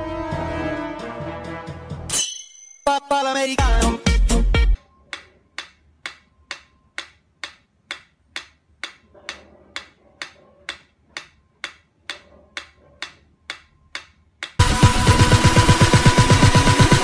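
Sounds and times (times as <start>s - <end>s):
loud music: 0.0s - 2.1s, 2.9s - 4.8s, 14.6s - 17.0s
steady ticking: 5.1s - 17.0s.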